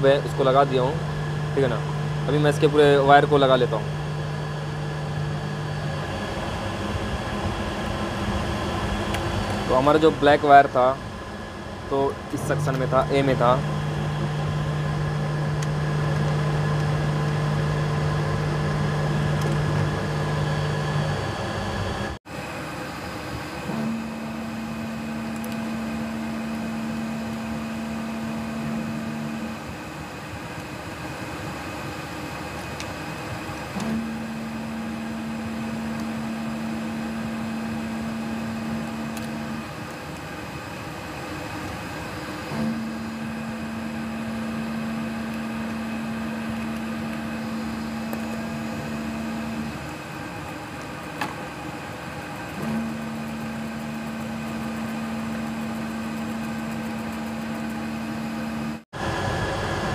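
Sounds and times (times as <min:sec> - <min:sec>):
low humming tone: 0:00.0 - 0:22.2
air conditioning units and fans: 0:00.0 - 0:59.9
steady low hum: 0:00.0 - 0:59.9.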